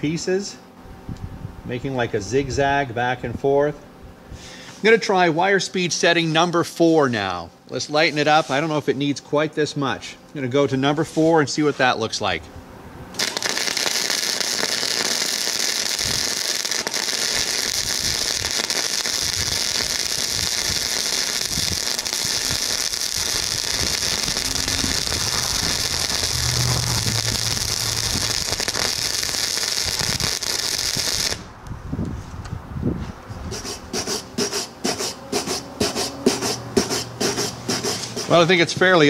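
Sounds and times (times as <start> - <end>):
welding arc crackling: 13.2 - 31.6
wire brush scrubbing metal: 33.4 - 38.6.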